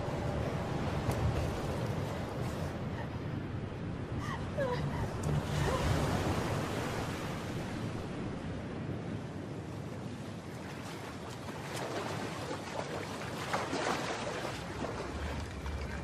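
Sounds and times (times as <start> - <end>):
ocean surf washing: 0.0 - 16.0
person wading through water: 10.6 - 16.0.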